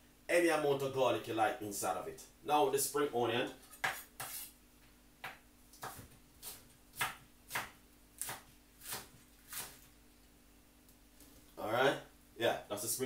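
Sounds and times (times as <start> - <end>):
knife chopping on cutting board: 3.8 - 4.4, 5.2 - 9.8.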